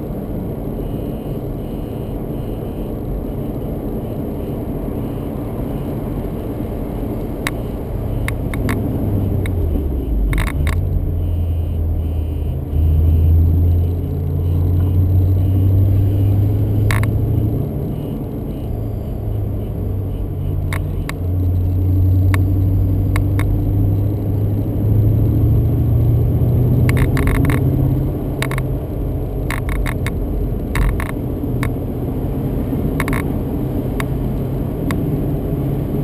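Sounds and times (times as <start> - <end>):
road noise: 0.0 - 36.0
car engine running: 3.1 - 36.0.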